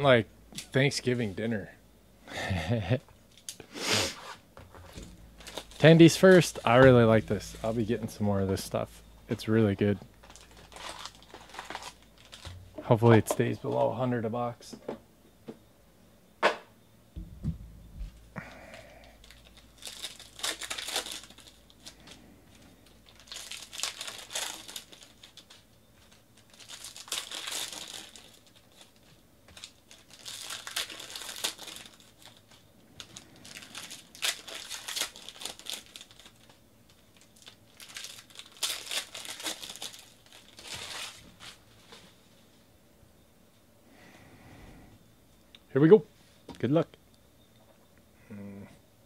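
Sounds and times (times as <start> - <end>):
foil wrappers tearing and crinkling: 3.3 - 12.8, 18.4 - 41.7.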